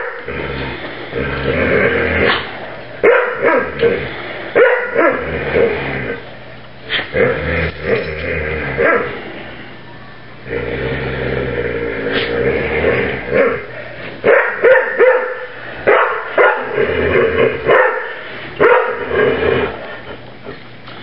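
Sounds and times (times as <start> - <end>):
dog growling: 0.0 - 2.8, 3.4 - 9.7, 10.4 - 14.0, 16.3 - 20.6
dogs barking sharply: 2.3 - 3.8, 4.6 - 5.2, 14.2 - 16.7, 17.7 - 19.1.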